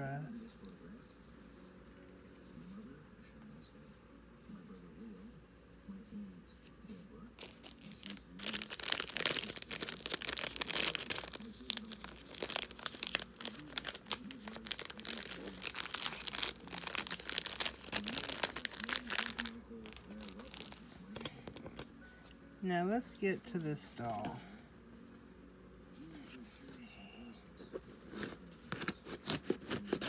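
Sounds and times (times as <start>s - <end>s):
plastic bag crinkling and rustling: 7.4s - 21.8s.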